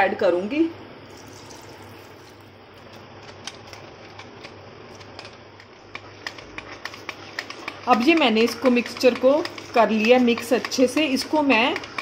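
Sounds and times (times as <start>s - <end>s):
whisk clicking against a bowl: 3.3s - 12.0s.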